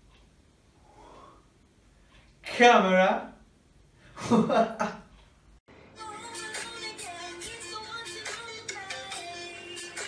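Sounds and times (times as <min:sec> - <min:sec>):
pop music with a beat: 0:06.0 - 0:10.0.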